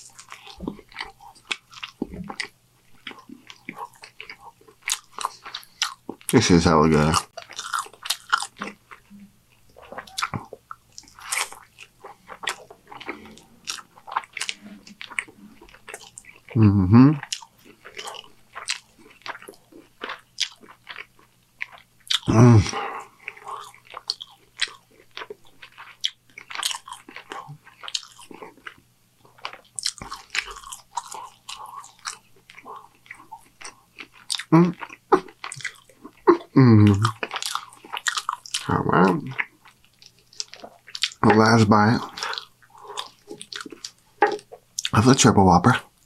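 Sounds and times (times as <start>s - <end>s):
close-miked chewing: 0.0s - 46.0s
person making mm sounds: 16.5s - 17.4s, 22.1s - 23.7s, 34.4s - 35.3s, 36.2s - 37.2s.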